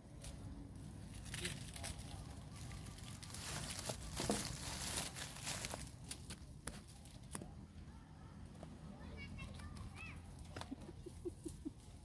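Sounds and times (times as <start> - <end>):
bamboo leaves rustling: 0.1 - 7.4.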